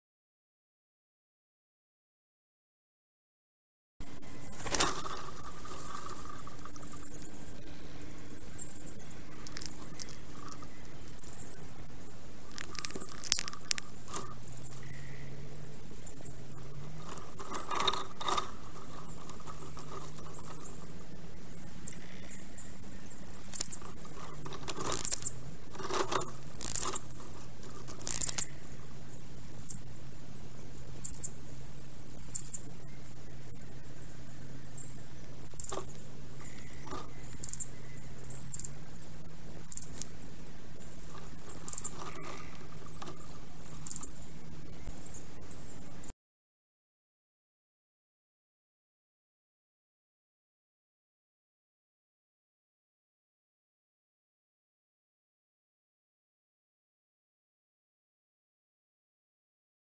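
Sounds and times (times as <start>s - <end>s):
faint low hum: 4.0s - 46.1s
high-pitched bird chirps: 8.3s - 12.0s, 12.6s - 25.6s, 26.3s - 28.8s, 29.4s - 32.8s, 34.3s - 45.8s.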